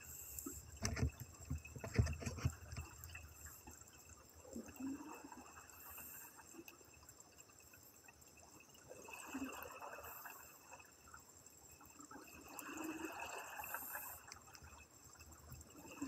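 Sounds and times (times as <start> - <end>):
underwater bubbling from exhaled breath: 4.4 - 6.9, 8.8 - 11.0, 11.9 - 14.8.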